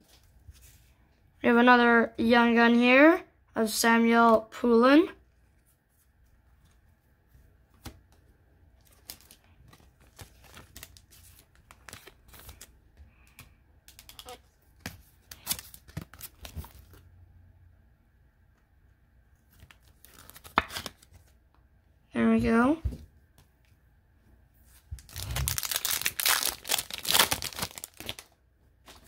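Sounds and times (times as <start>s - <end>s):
wrapper crinkling: 25.0s - 29.0s.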